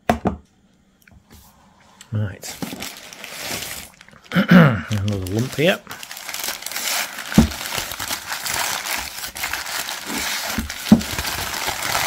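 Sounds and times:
newspaper crinkling: 0:02.4 - 0:12.0.

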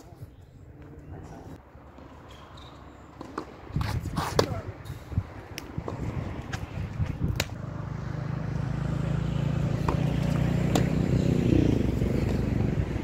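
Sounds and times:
tennis ball striking racket: 0:09.8 - 0:11.1.

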